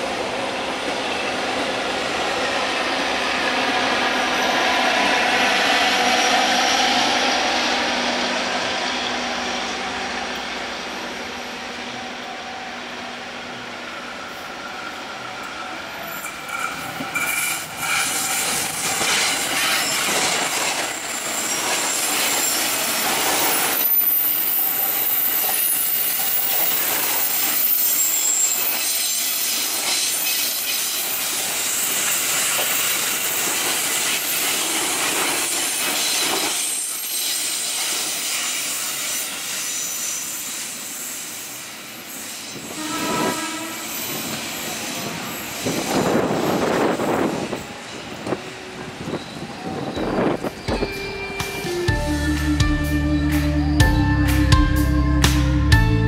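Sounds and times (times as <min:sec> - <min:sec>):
electric train rolling past: 0:00.0 - 0:56.0
wheel squeal on rails: 0:14.2 - 0:51.8
train horn: 0:42.6 - 0:45.1.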